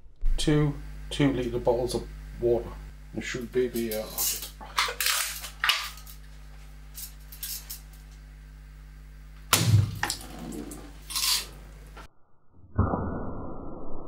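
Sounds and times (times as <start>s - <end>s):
bb rifle shot: 9.5s - 10.1s.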